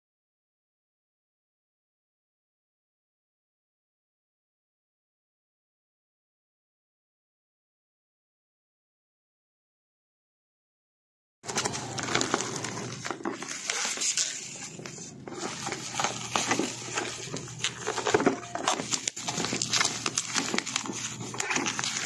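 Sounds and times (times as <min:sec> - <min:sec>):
crackles and clicks: 0:11.4 - 0:22.0
plastic packaging crinkling: 0:11.5 - 0:22.0.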